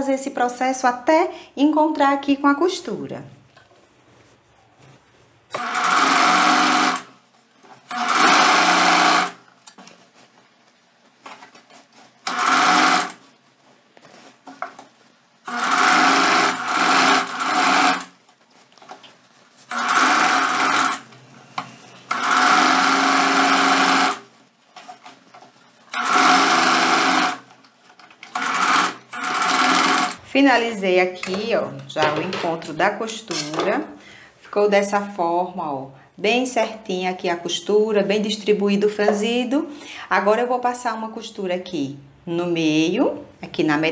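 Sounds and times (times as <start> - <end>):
electric sewing machine running: 5.5 - 7.1, 7.9 - 9.4, 12.2 - 13.2, 15.5 - 18.1, 19.7 - 21.1, 22.1 - 24.2, 25.9 - 27.5, 28.2 - 30.2.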